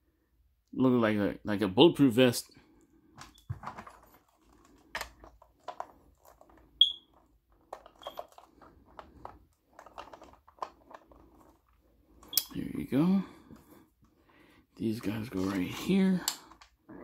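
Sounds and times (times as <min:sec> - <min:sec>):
plastic toy parts clicking: 0:04.9 - 0:11.5.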